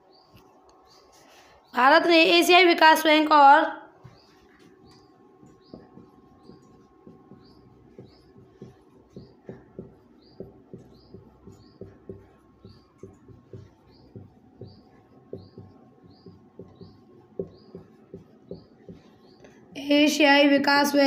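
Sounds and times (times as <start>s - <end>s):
marker squeaking: 4.0s - 19.6s
marker knocking and scraping: 4.0s - 19.8s.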